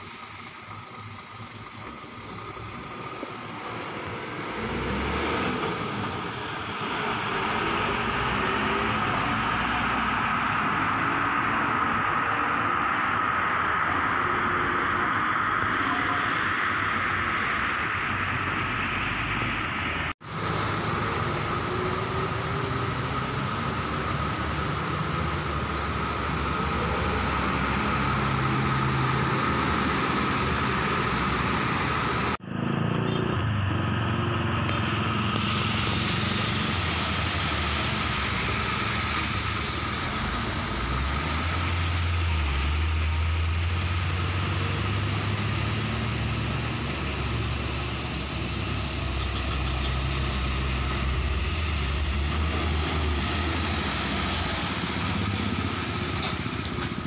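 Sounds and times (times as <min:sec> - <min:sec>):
truck engine running steadily: 0:00.0 - 0:32.5
dump trucks driving past: 0:00.0 - 0:57.0.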